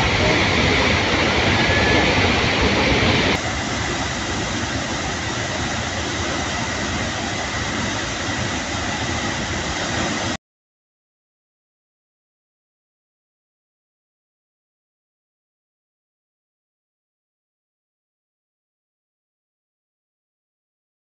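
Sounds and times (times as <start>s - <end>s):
waterfall roaring: 0.0s - 10.4s.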